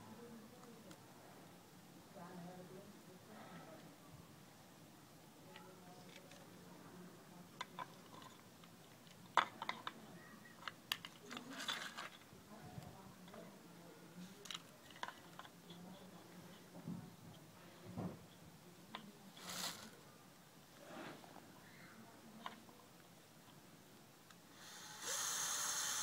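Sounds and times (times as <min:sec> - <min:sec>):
scraping rustle: 0:11.2 - 0:12.3, 0:19.3 - 0:20.0, 0:20.8 - 0:21.5.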